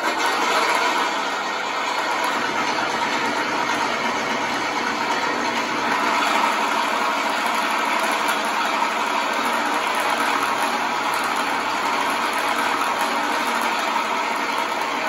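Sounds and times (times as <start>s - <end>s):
simulated aircraft engine idling: 1.4s - 9.8s.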